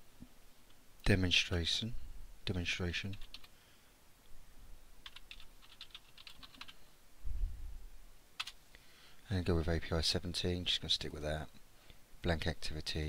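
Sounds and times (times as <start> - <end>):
computer keyboard typing: 3.1 - 3.5, 5.0 - 6.8.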